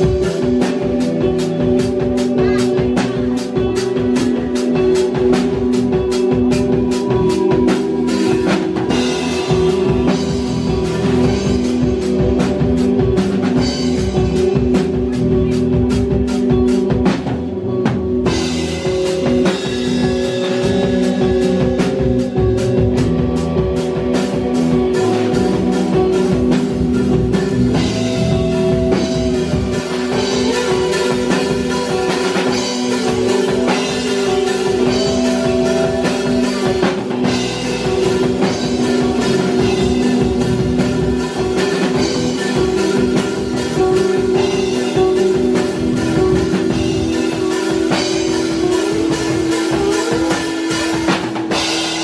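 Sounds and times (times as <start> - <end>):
drum kit beating: 0.0 - 52.0
electric guitars sustained notes: 0.0 - 52.0.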